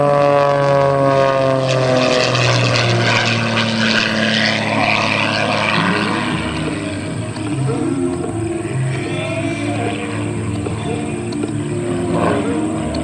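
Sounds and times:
propeller plane flying past: 0.0s - 13.0s.

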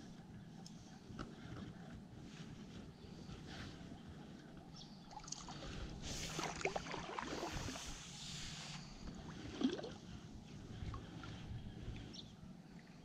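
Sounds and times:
fish thrashing water splashes: 6.2s - 7.8s.

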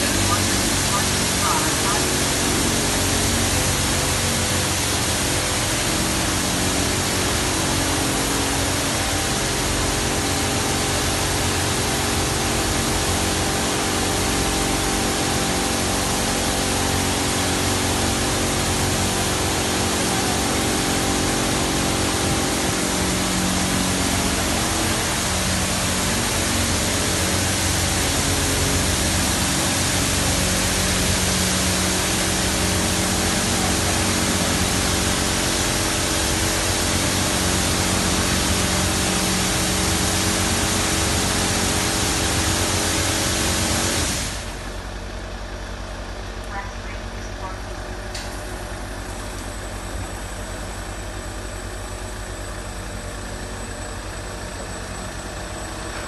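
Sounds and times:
high-pressure water spray hissing: 0.0s - 44.8s
low machine hum: 0.0s - 56.0s.

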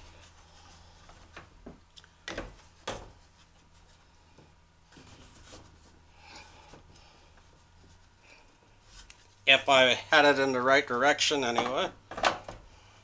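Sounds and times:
faint rubbing and scraping: 2.6s - 10.4s.

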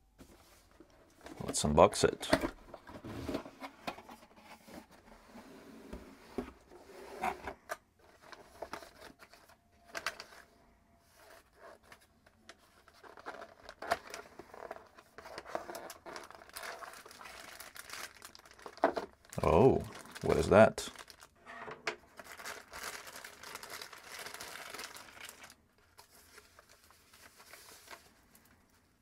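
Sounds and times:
plastic wrapping crinkling: 12.8s - 21.4s, 22.1s - 28.9s.

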